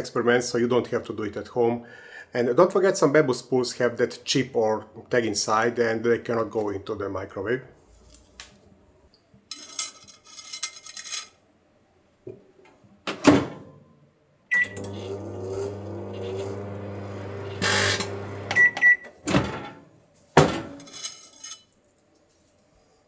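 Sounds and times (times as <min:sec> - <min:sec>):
microwave oven humming: 0:14.5 - 0:18.8
microwave beeps: 0:14.5 - 0:19.2.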